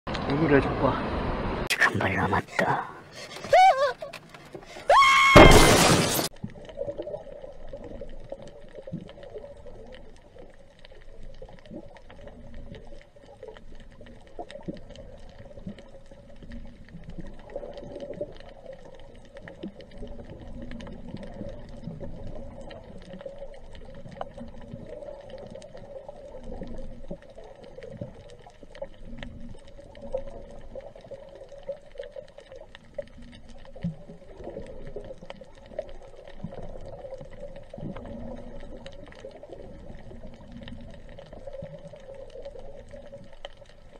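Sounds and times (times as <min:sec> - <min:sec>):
faint clicks and crackles: 0:06.3 - 0:43.9
muffled underwater water wash: 0:06.3 - 0:43.9.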